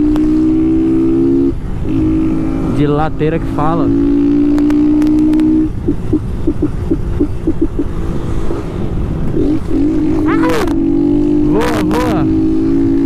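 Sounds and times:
motorcycle engine stuttering: 0.0s - 8.6s, 9.3s - 13.0s.

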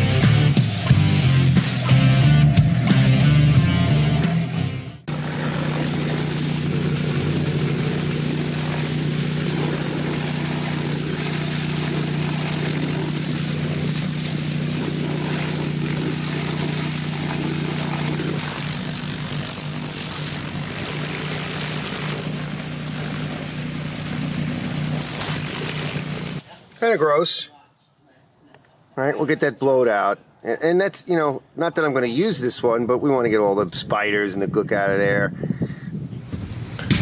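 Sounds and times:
water jet hissing: 0.0s - 1.9s, 5.1s - 26.4s
pressure washer motor hum: 0.0s - 26.5s.

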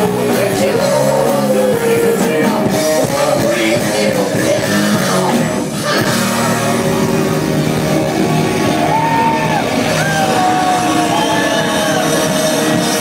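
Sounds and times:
live rock band playing: 0.0s - 13.0s
sliding high guitar notes: 4.6s - 13.0s
singer shouting and singing: 8.8s - 13.0s.

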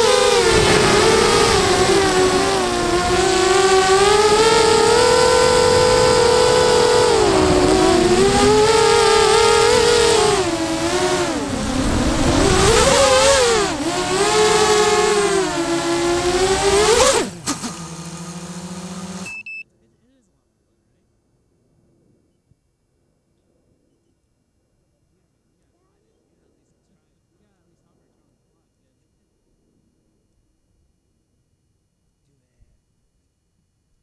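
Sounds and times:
low steady hum: 0.0s - 17.5s
drone motors whining: 0.0s - 19.3s.

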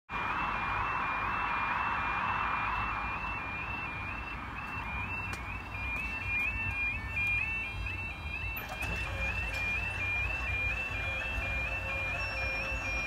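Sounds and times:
rushing noise: 0.1s - 5.2s
second alarm: 0.1s - 13.0s
two-tone electronic warning alarm: 0.1s - 13.0s.

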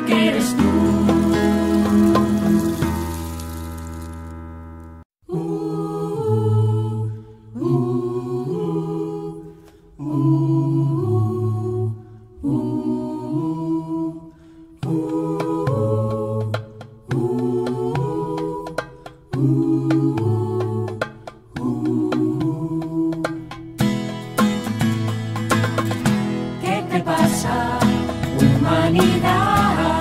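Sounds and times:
low voiced choir chanting: 0.0s - 2.0s, 5.3s - 23.4s, 26.6s - 30.0s.

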